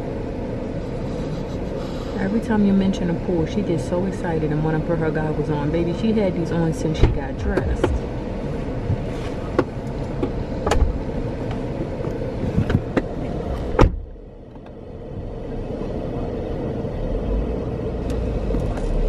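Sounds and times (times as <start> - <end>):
muffled car cabin hum: 0.0 - 19.0
car door shutting: 8.8 - 11.0, 12.0 - 14.7.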